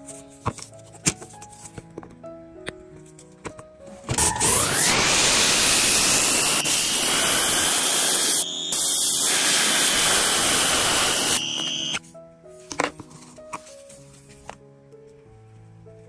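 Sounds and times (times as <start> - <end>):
electric air blower whining: 4.2 - 12.0.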